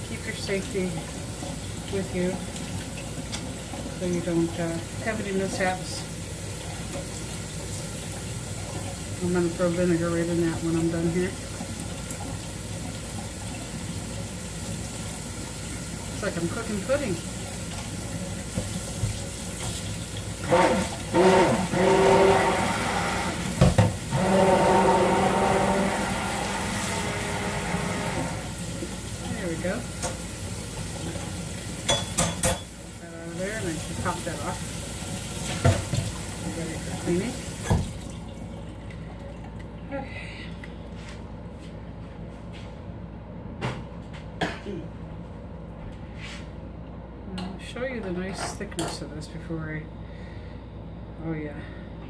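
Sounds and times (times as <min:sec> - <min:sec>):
tap water splashing into sink: 0:17.4 - 0:21.1, 0:23.4 - 0:24.1, 0:35.1 - 0:39.7.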